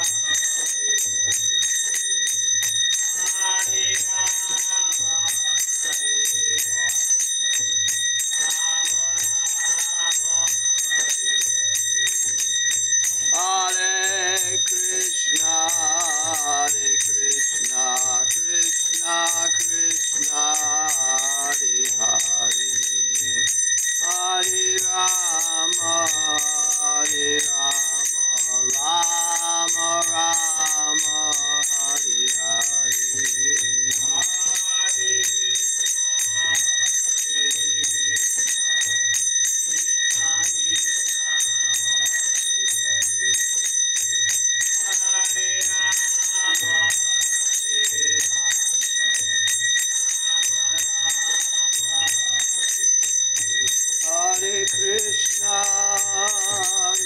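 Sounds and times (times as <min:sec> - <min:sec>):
man singing a chant: 0:03.0 - 0:07.0, 0:08.2 - 0:11.1, 0:13.3 - 0:35.4, 0:44.6 - 0:48.9, 0:54.0 - 0:57.0.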